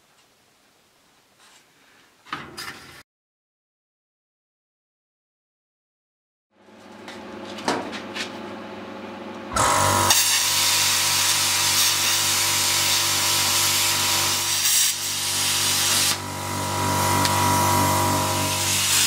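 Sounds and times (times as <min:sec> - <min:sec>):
machine hum: 0:06.6 - 0:19.0
plasma cutter arc hissing: 0:09.6 - 0:19.0.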